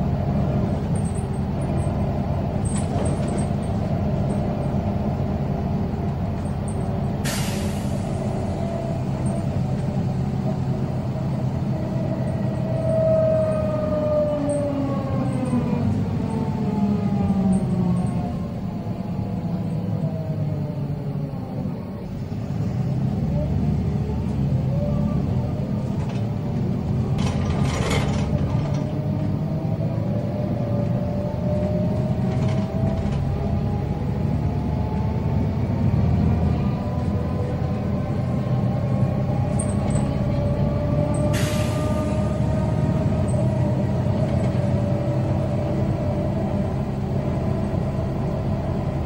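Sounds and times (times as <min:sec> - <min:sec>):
bus engine under way: 0:00.0 - 0:49.0.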